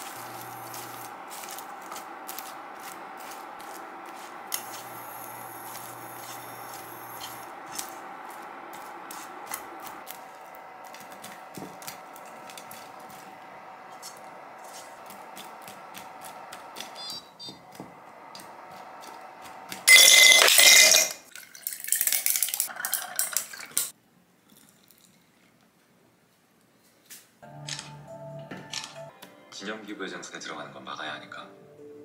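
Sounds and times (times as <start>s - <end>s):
spatula scraping popcorn in pan: 0.0s - 16.9s
cooktop hum: 0.0s - 25.6s.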